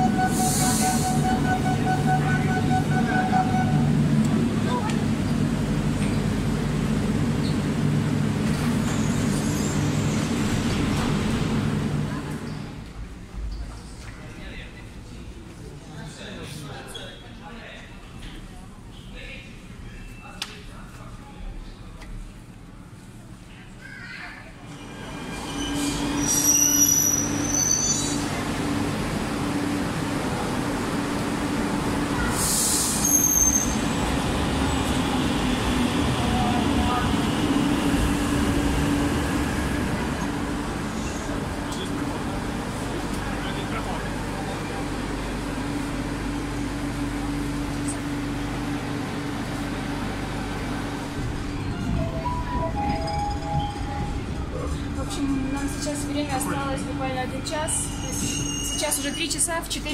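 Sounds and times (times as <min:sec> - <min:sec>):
train doors hissing open: 0:00.0 - 0:03.6, 0:32.2 - 0:34.2
train humming at platform: 0:00.0 - 0:16.8, 0:17.6 - 0:59.9.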